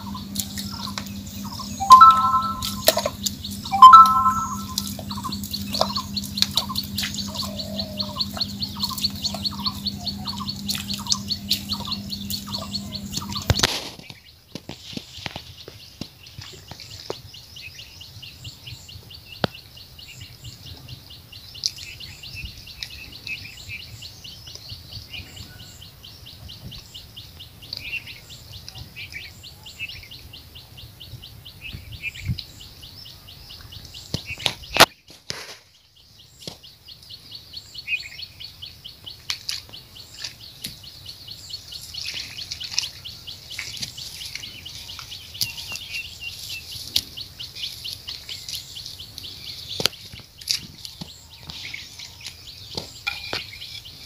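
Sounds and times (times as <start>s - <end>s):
low rumble: 0.0s - 1.8s, 2.6s - 3.7s, 4.6s - 13.7s
small birds chirping: 0.0s - 14.4s, 35.8s - 54.0s.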